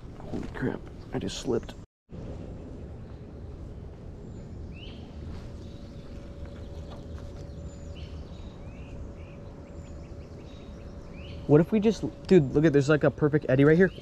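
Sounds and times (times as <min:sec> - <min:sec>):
faint steady hum: 0:00.0 - 0:14.0
low steady rumble: 0:02.1 - 0:14.0
bird chirps: 0:04.2 - 0:14.0.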